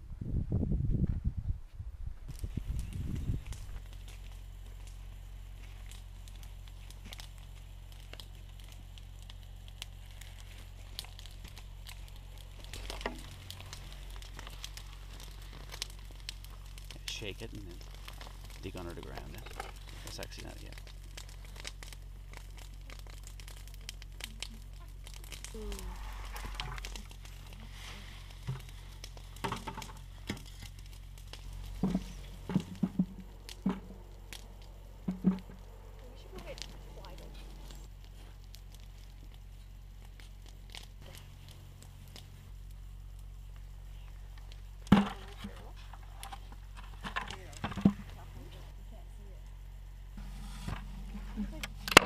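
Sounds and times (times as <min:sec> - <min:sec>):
low steady hum: 0:00.0 - 0:52.0
soil and plants rustling: 0:02.2 - 0:52.0
plant leaves rustling: 0:24.2 - 0:42.4.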